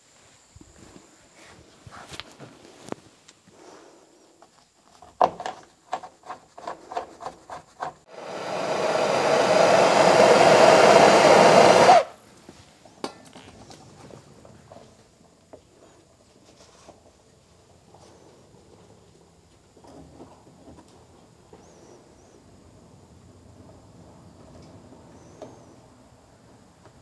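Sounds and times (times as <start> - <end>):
power tool motor whirring: 8.1 - 12.1.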